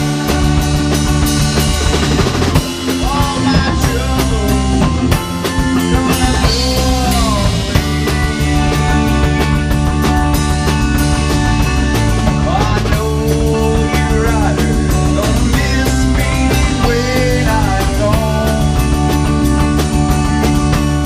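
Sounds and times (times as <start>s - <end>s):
rock band playing live: 0.0s - 21.0s
man singing: 2.8s - 8.1s, 12.3s - 19.2s.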